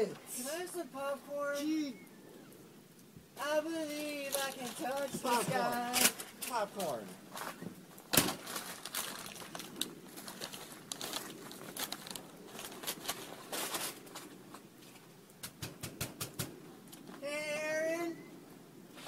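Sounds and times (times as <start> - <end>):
crunching and clicks: 7.4 - 15.6.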